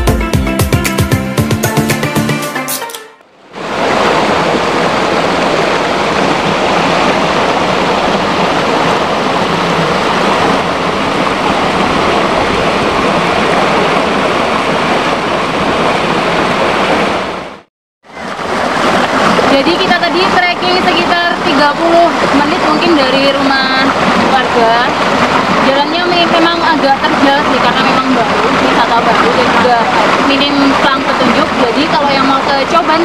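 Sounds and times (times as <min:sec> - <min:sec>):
waterfall rushing: 0:03.4 - 0:33.0.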